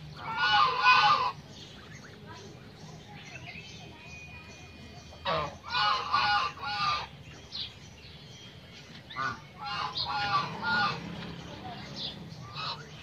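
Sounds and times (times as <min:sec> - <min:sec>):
geese honking: 0:00.1 - 0:02.2, 0:05.2 - 0:07.2, 0:09.0 - 0:11.3, 0:12.4 - 0:13.0.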